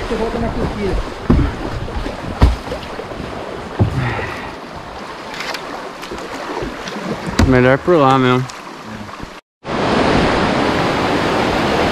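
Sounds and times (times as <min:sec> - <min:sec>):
river current rushing: 0:00.0 - 0:11.9
thump on kayak: 0:01.2 - 0:02.9, 0:03.7 - 0:04.5, 0:05.4 - 0:07.7.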